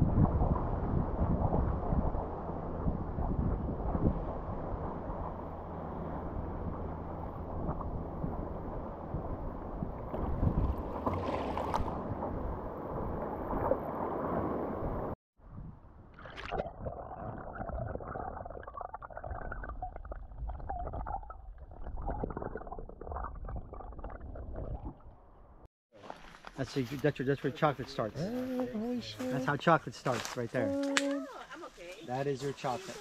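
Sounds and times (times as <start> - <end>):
wind buffeting microphone: 0.0 - 15.9
muffled underwater sloshing: 1.2 - 15.2
water splashing: 9.8 - 14.9, 16.2 - 25.2.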